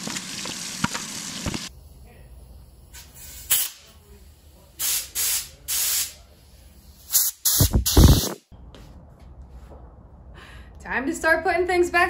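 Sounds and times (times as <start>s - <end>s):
air blow gun hissing: 2.8s - 3.9s, 4.8s - 6.2s, 7.0s - 8.4s.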